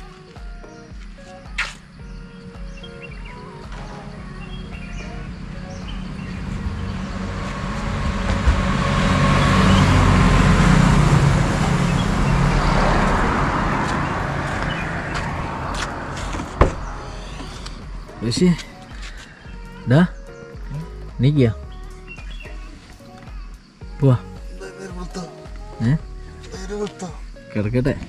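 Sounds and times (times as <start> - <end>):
vehicle passing: 1.8 - 19.6
car door click: 16.3 - 17.8.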